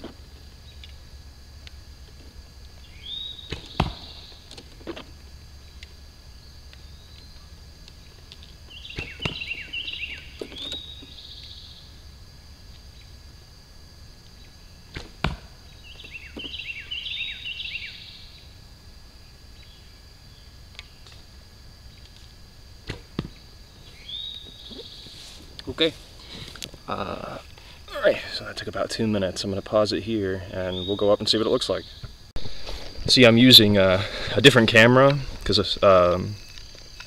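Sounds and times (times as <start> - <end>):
bird singing falling notes: 8.7 - 12.0, 15.6 - 18.4.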